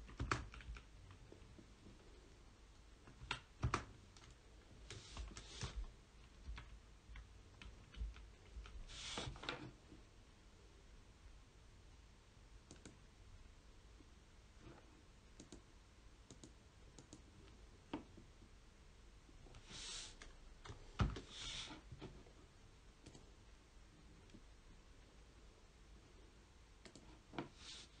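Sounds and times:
keyboard and mouse clicks: 0.0s - 1.2s, 3.0s - 9.8s, 12.6s - 13.0s, 15.4s - 15.7s, 16.3s - 18.2s, 23.0s - 23.3s, 26.8s - 27.5s.

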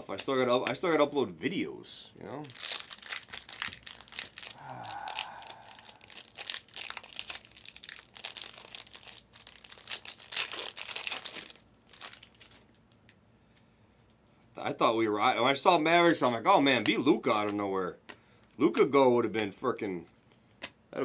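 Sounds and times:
foil wrappers tearing and crinkling: 2.4s - 12.8s.

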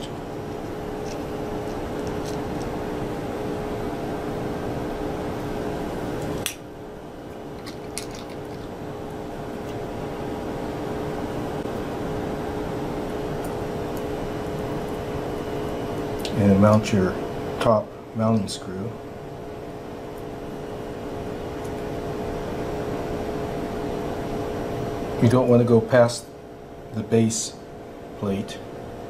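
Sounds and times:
fan hum: 0.0s - 29.0s.

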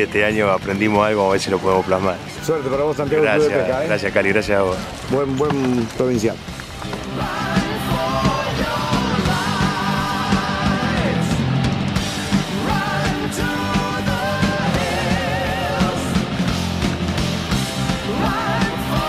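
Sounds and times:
rock music with singing: 6.4s - 19.0s.

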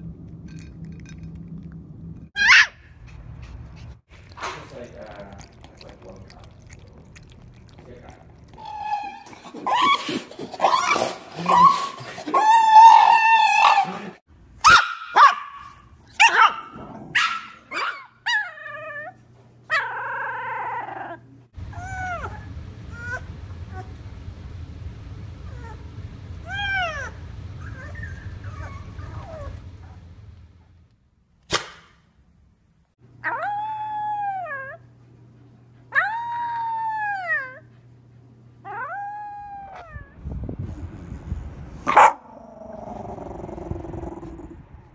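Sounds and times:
puppy crying: 2.4s - 3.0s, 8.5s - 14.0s, 33.2s - 34.8s
puppy moaning: 4.9s - 14.2s, 19.7s - 23.9s, 38.6s - 44.6s.

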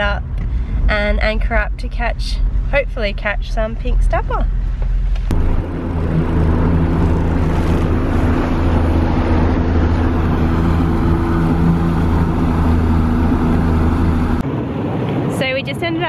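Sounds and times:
outboard motor droning: 5.3s - 14.4s
water rushing along hull: 5.3s - 14.4s.

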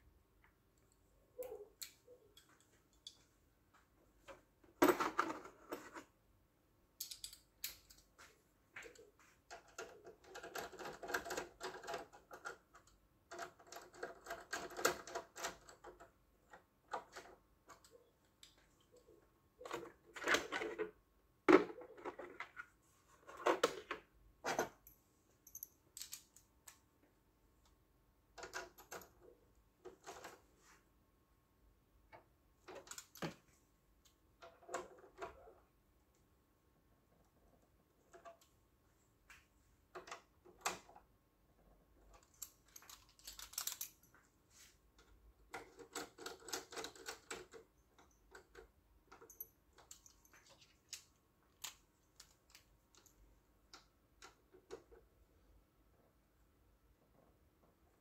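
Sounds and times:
small hard parts and tools clicking: 7.0s - 30.5s, 32.1s - 35.7s, 39.8s - 44.3s, 44.9s - 55.1s.

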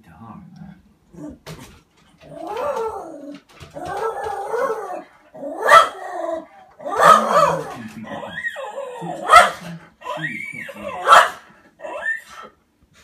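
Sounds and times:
dog howling and yipping: 2.2s - 12.6s
dog yelping: 2.2s - 12.6s.

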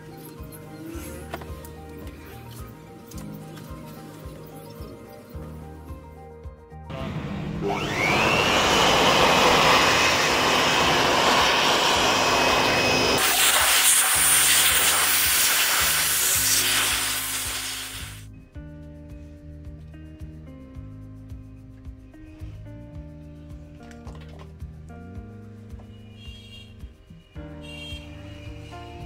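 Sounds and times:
electric motor whining: 6.9s - 18.2s.

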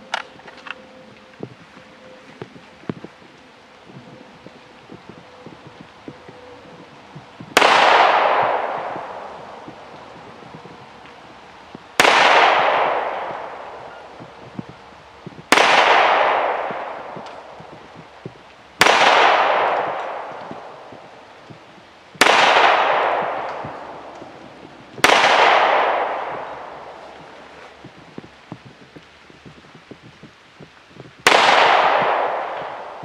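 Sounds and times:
pistol shots with echo: 7.6s - 9.7s, 12.0s - 14.1s, 15.5s - 17.5s, 18.8s - 21.0s, 22.2s - 24.4s, 25.0s - 27.0s, 31.2s - 33.0s.

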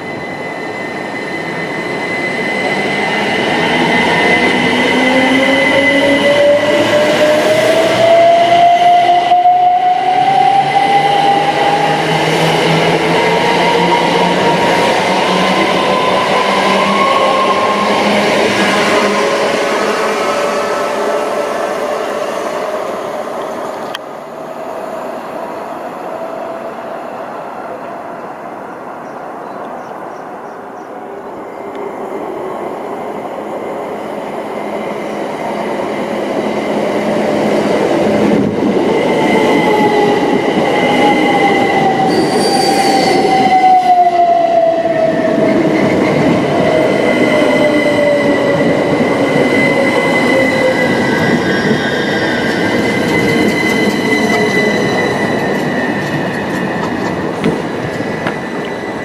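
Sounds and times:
train rumble: 34.8s - 59.0s
high-pitched squeal: 40.8s - 57.0s.

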